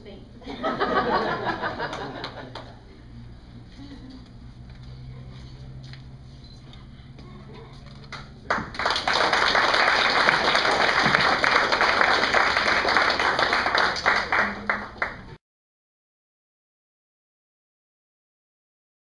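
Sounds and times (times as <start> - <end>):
audience applauding: 1.4 - 2.8, 8.1 - 15.4.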